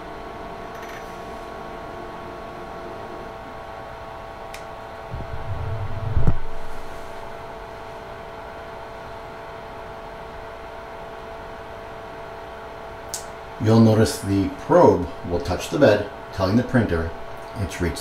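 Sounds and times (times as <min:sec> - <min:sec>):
cooling fans humming: 0:00.0 - 0:18.0
low mechanical rumble: 0:01.3 - 0:10.7, 0:11.3 - 0:18.0
mechanical thump: 0:05.1 - 0:06.6.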